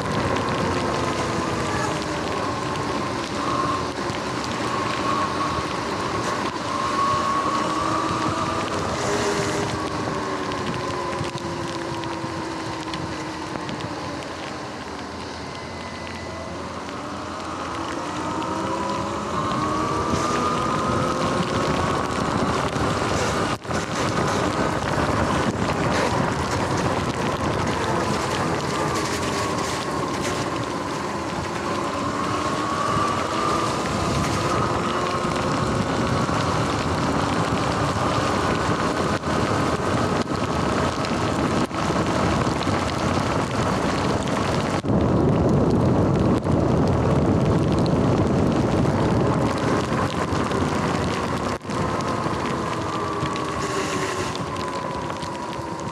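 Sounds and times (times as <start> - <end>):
electric motorbike motor whining: 0.0 - 55.9
tyres on wet pavement: 0.0 - 55.9
wind on microphone: 0.0 - 55.9.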